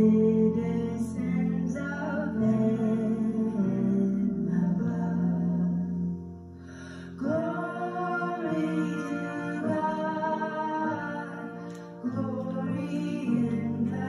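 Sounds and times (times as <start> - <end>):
quiet musical accompaniment: 0.0 - 14.0
woman singing a hymn: 7.2 - 14.0.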